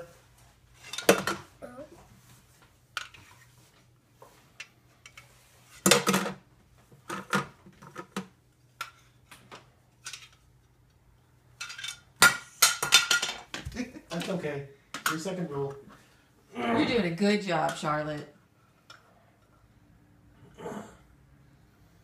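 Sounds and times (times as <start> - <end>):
toy pieces clattering: 11.6 - 13.5.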